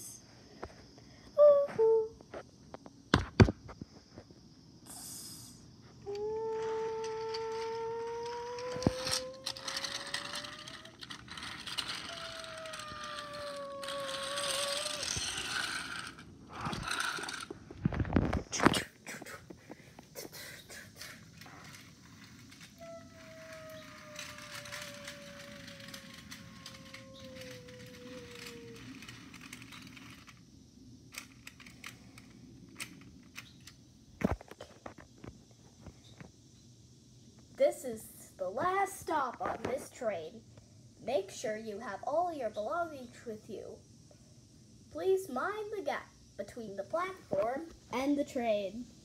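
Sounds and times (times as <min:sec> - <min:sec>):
toy train motor whine: 0:04.9 - 0:17.6, 0:20.3 - 0:30.4, 0:31.1 - 0:33.8
train rattling on plastic track: 0:06.5 - 0:17.6, 0:21.0 - 0:30.4, 0:31.1 - 0:33.8.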